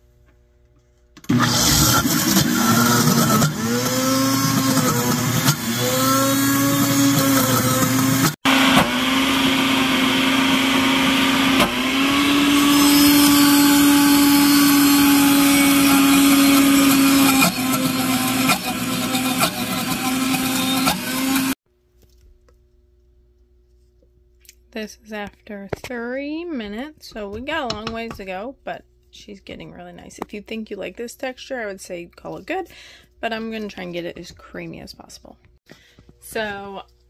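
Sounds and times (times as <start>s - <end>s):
blender motor grinding: 1.2s - 21.6s.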